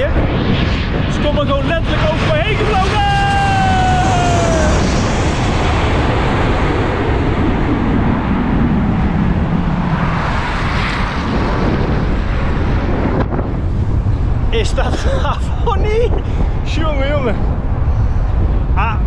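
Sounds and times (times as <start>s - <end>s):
airliner engine roar: 0.0s - 19.0s
falling whining tone: 2.3s - 6.6s.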